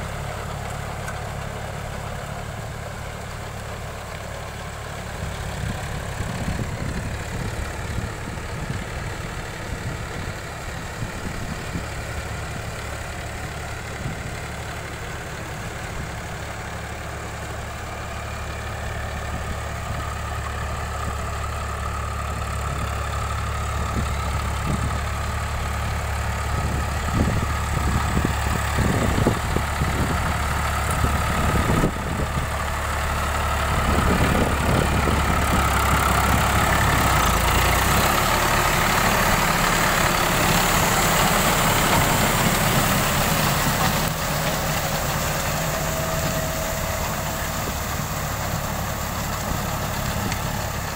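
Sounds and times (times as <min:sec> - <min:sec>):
diesel tractor engine under load: 0:00.0 - 0:50.9.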